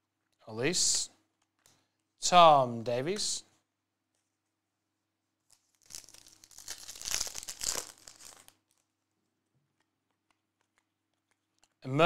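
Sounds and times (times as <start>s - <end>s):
foil wrapper crinkling: 5.4s - 9.0s.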